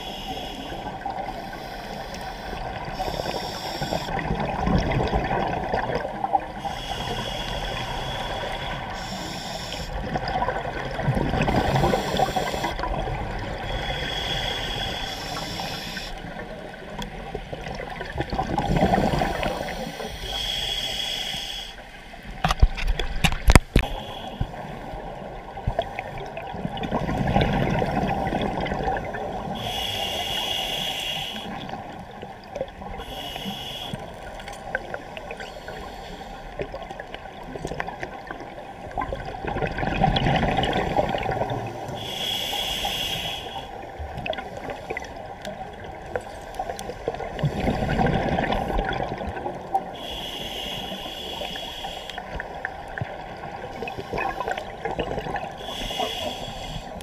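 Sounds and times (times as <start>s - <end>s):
regulator hissing inhalations: 0.0s - 4.1s, 6.6s - 10.0s, 11.6s - 12.8s, 13.6s - 16.2s, 18.9s - 21.8s, 23.8s - 24.8s, 29.5s - 31.7s, 33.0s - 34.3s, 35.4s - 36.6s, 41.9s - 43.8s, 50.0s - 52.5s, 55.6s - 57.0s.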